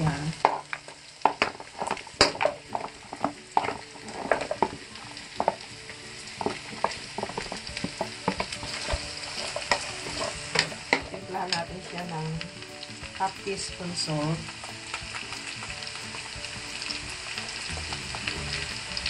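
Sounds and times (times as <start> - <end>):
meat sizzling in a wok: 0.0 - 19.0
knocks in the pan: 0.4 - 4.8, 5.4 - 5.6.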